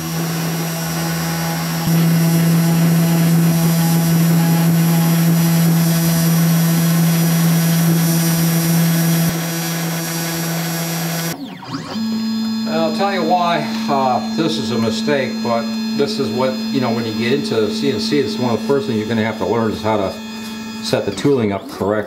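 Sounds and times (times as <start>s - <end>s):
router spindle motor whine: 0.0s - 22.0s.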